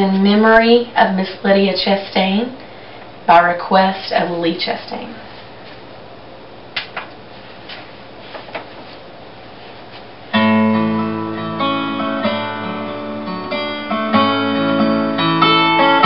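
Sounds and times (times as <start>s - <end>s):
guitar playing held chords: 10.3s - 16.0s.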